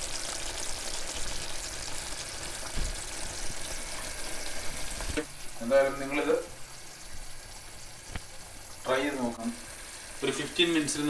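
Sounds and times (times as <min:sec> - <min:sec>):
curry simmering and bubbling: 0:00.0 - 0:11.0
dull low thump: 0:02.6 - 0:03.2.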